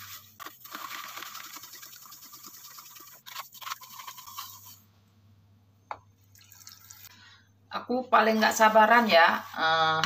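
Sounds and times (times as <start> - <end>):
spoon stirring salt in water: 0.0 - 4.8.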